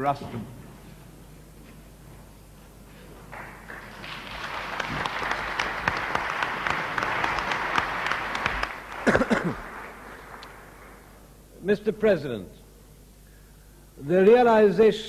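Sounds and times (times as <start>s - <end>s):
audience applauding: 3.3s - 11.3s.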